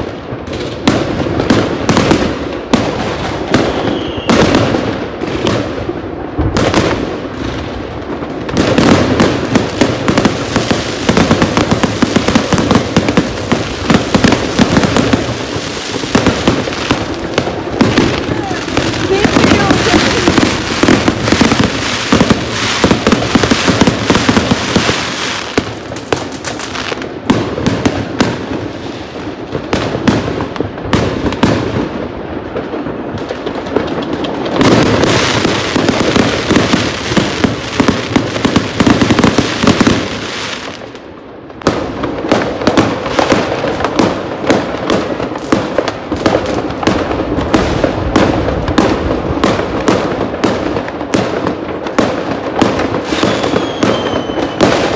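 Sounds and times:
fireworks bangs and crackling: 0:00.0 - 0:54.9.

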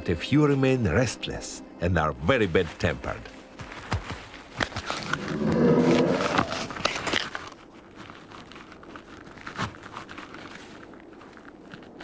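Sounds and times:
claws scratching bark and snow: 0:04.3 - 0:12.0
bear growling: 0:04.9 - 0:06.9.

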